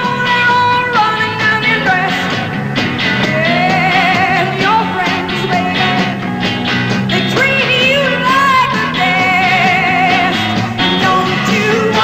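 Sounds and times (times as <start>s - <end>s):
woman singing: 0.0s - 2.5s, 3.2s - 6.2s, 7.1s - 12.0s
psychedelic rock band: 0.0s - 12.0s.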